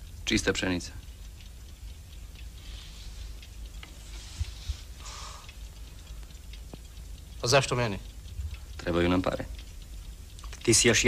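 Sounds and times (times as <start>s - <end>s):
faint rustles and ticks: 0.0s - 11.0s
film soundtrack hum and hiss: 0.0s - 11.0s.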